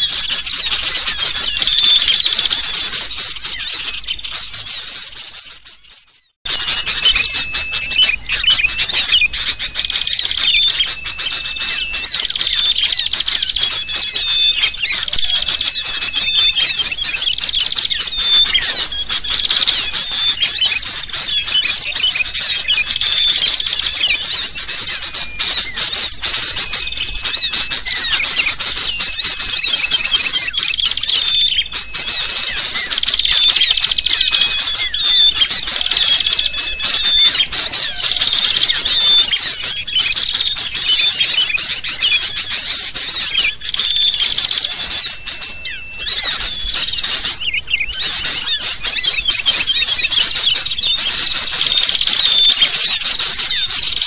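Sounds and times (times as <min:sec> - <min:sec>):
bulbuls calling noisily: 0:00.0 - 0:54.0
small birds chirping: 0:00.0 - 0:54.0.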